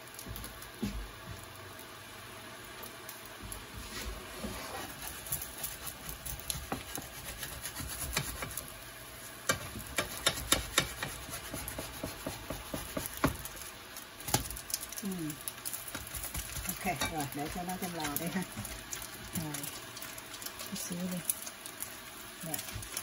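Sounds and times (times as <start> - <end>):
quiet sizzle of frying: 0.0 - 23.0
utensil tapping pan: 6.5 - 8.6, 9.5 - 13.5, 15.9 - 18.8.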